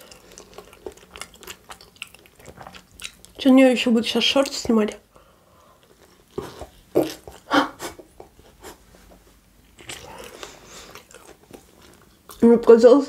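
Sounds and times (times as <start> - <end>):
soft chewing: 0.0 - 12.8
woman laughing with mouth full: 7.5 - 8.7.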